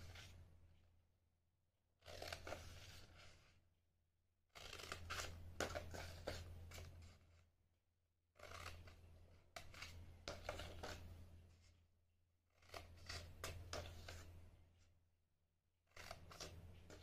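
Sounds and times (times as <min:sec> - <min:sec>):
scissors snipping paper: 0:04.6 - 0:06.9, 0:08.4 - 0:11.0.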